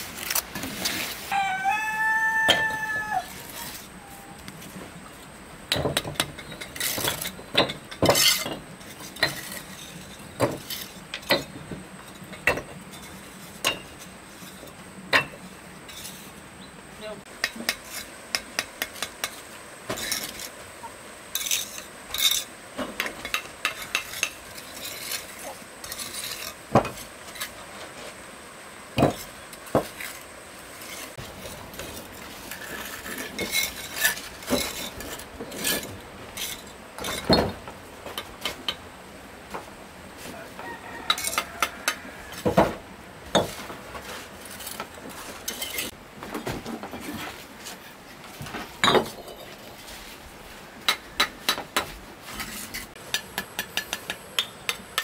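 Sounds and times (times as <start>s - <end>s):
low steady background noise: 0.0s - 55.0s.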